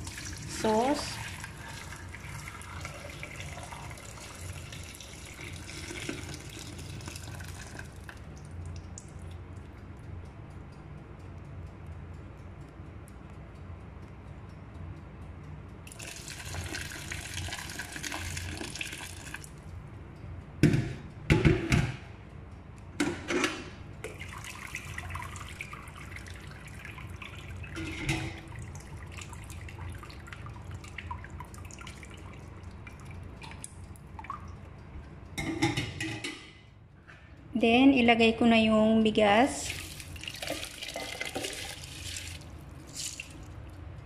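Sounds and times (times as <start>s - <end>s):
sauce pouring through strainer: 1.2s - 8.2s, 15.9s - 19.5s, 39.6s - 43.5s.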